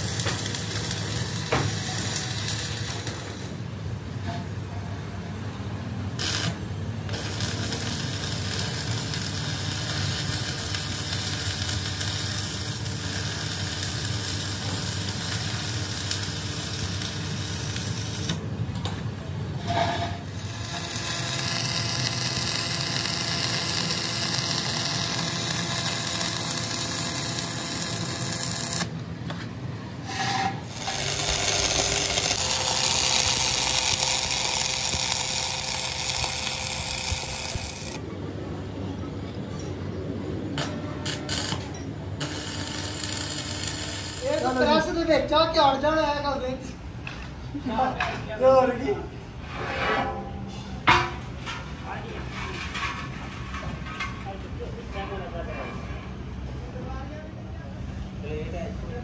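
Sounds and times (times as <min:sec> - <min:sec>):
arc welding hiss: 0:00.0 - 0:03.6, 0:06.2 - 0:18.4, 0:20.3 - 0:28.9, 0:30.7 - 0:38.0, 0:40.6 - 0:45.1.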